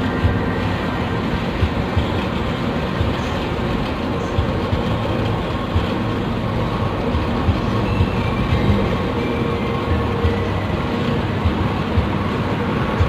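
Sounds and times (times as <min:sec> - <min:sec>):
bus engine and road rumble: 0:00.0 - 0:13.0
knocks and rattles from bumps: 0:00.1 - 0:09.2.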